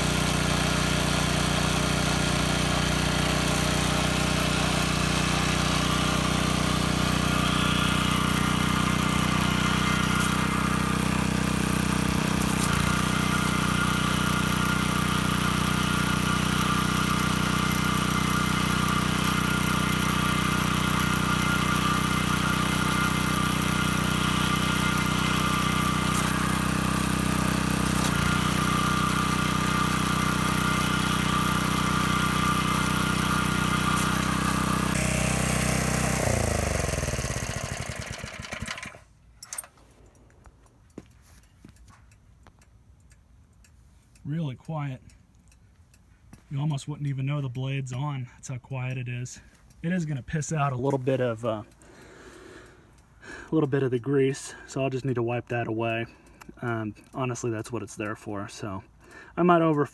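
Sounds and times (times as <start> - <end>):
small engine running: 0.0 - 40.2, 51.6 - 53.7.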